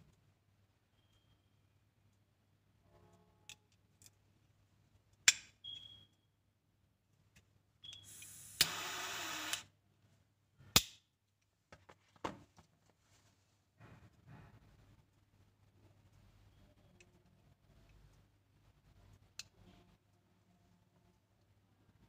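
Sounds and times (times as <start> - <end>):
torch flame hiss: 8.1 - 9.6.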